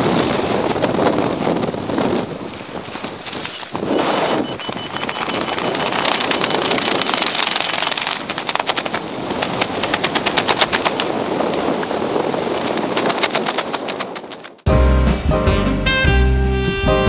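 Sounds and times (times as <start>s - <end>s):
wind buffeting microphone: 0.0s - 14.7s
rapid flapping rattle: 4.4s - 14.7s.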